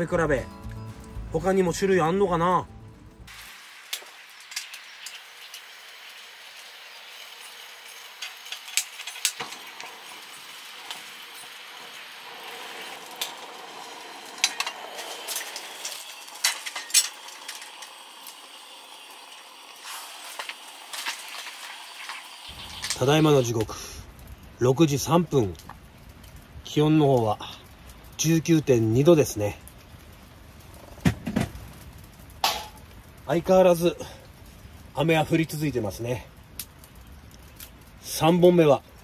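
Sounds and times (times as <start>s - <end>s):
rain falling on a tent: 3.3s - 39.0s.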